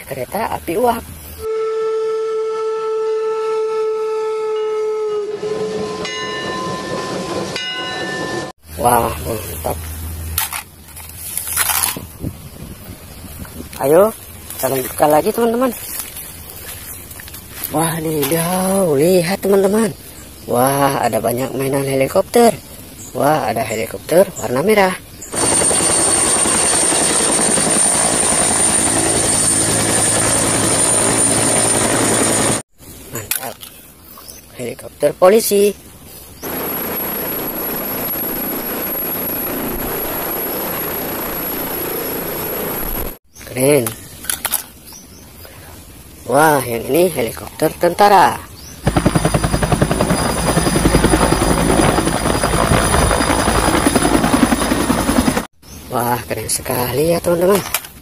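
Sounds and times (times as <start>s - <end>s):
high turbine whine: 25.2s - 32.6s, 36.4s - 43.2s, 48.8s - 55.5s
helicopter rotor beat: 25.3s - 32.6s, 36.4s - 43.2s, 48.8s - 55.5s.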